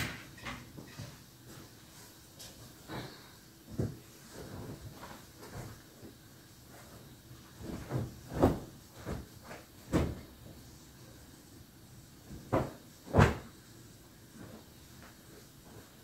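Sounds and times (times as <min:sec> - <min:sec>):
garments rustling: 0:03.6 - 0:11.3, 0:12.2 - 0:16.0.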